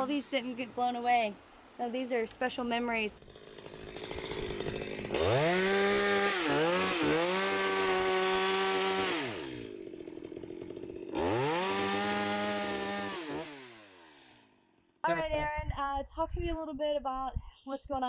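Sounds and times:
chainsaw cutting wood: 3.1s - 15.0s.

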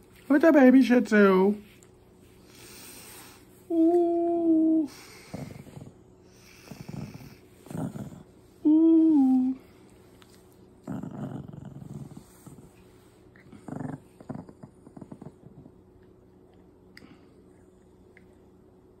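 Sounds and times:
puppy growling: 4.8s - 8.4s, 10.7s - 16.0s.

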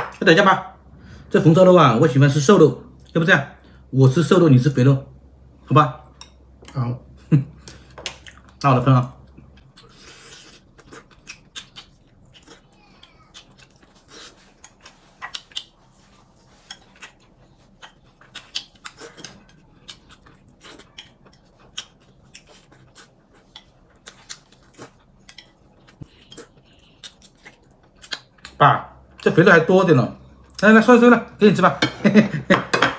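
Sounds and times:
man chewing: 6.5s - 8.6s, 9.2s - 29.3s.

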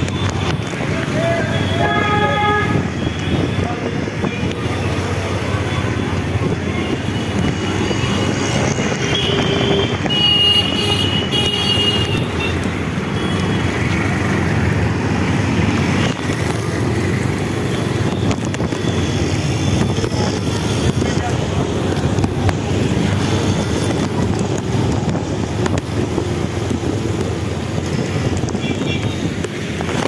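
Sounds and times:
traffic engines rumbling: 0.0s - 30.0s
wind noise: 0.0s - 30.0s
vehicle horn: 1.6s - 3.2s.

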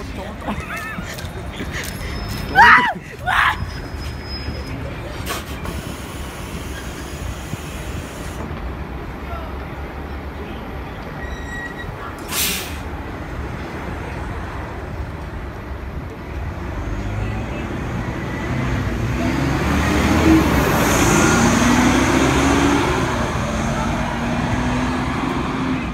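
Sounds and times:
bus engine driving past: 0.0s - 9.6s, 11.0s - 25.9s
air brake hiss: 12.2s - 12.9s.

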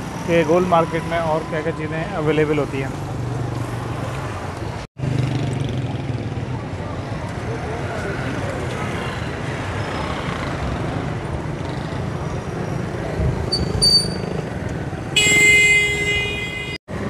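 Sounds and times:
street traffic passing: 0.0s - 17.0s
vehicle horn: 15.2s - 16.8s.

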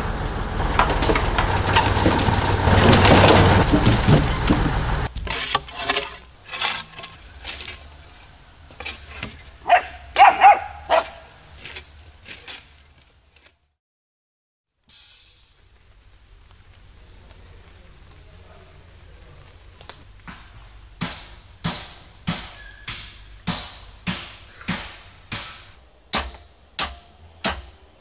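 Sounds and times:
crane engine humming: 0.0s - 5.2s
shovel blades knocking on logs: 1.8s - 10.3s, 21.0s - 27.7s.

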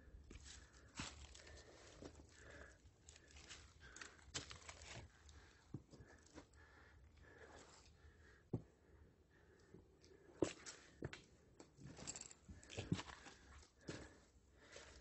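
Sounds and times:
footsteps on a trail: 12.1s - 15.0s.

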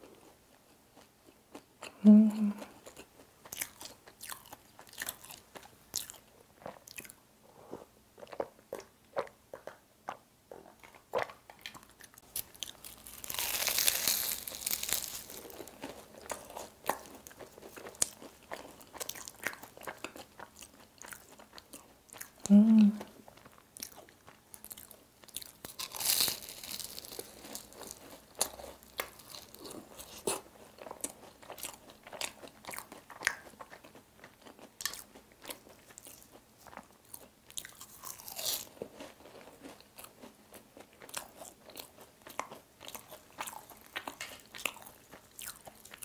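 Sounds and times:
crunching pastry crust: 11.6s - 22.3s, 23.4s - 46.0s.

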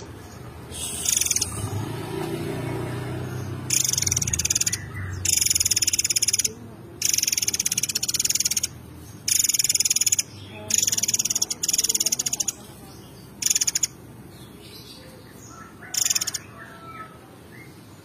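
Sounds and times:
songbird singing buzzy trill: 0.0s - 18.0s.

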